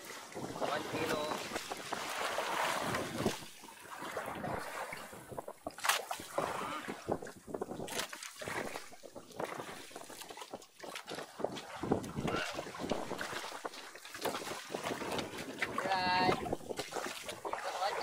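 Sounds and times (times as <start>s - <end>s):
water lapping against boat hull: 0.0s - 18.0s
wind on microphone: 0.0s - 18.0s
knocks and rustles handling fish: 4.5s - 18.0s.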